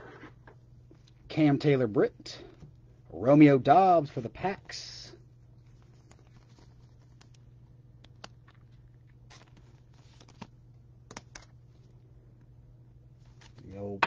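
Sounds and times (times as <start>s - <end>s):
steady low hum: 0.0s - 14.0s
trading cards rustling: 5.6s - 11.9s.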